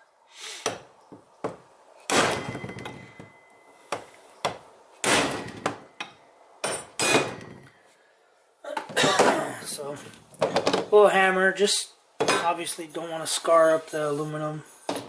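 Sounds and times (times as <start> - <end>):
hammer striking steel punch: 5.0 - 7.6.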